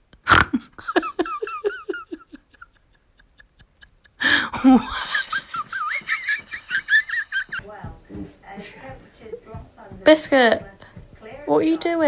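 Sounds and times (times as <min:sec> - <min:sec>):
person giggling: 0:00.2 - 0:07.6.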